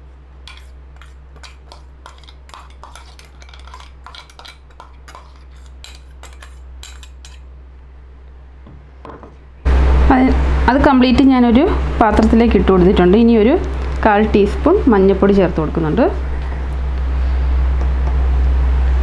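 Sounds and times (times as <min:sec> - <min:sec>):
low steady hum: 0:00.0 - 0:19.0
spoon scraping metal jar: 0:00.5 - 0:07.5.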